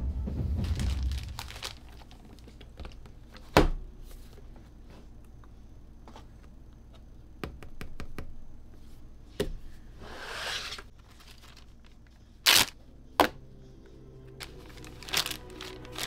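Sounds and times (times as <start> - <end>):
plastic bag ripping open: 0.6 - 2.5, 12.5 - 12.8, 14.8 - 16.0.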